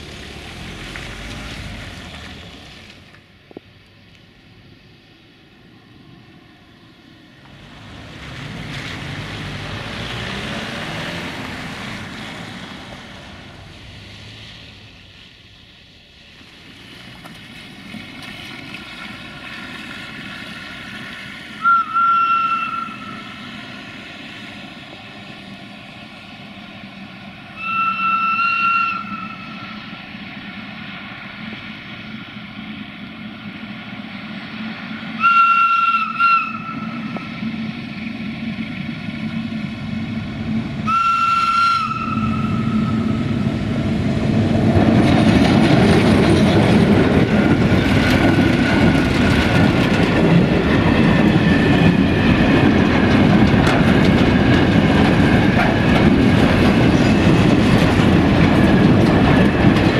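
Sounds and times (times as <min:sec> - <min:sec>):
locomotive engine humming: 0:00.0 - 0:59.9
passing road vehicle: 0:00.0 - 0:59.9
locomotive whistle blasts: 0:21.6 - 0:23.4, 0:27.6 - 0:29.8, 0:35.2 - 0:37.2, 0:40.8 - 0:43.4.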